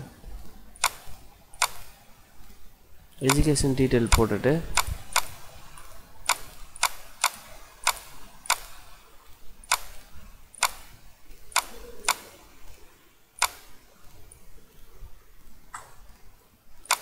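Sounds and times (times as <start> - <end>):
computer mouse clicking: 0.4 - 2.6, 3.2 - 9.0, 9.6 - 14.5, 16.8 - 17.0.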